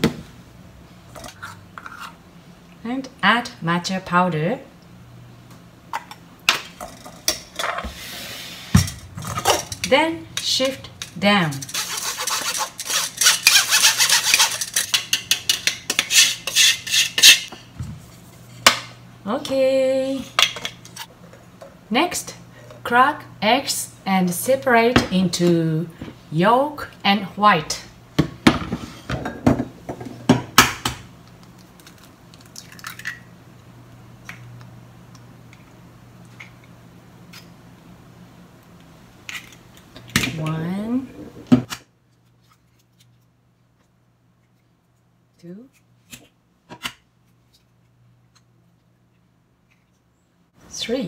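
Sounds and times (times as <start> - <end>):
spoon scraping through metal sieve: 11.4 - 17.5.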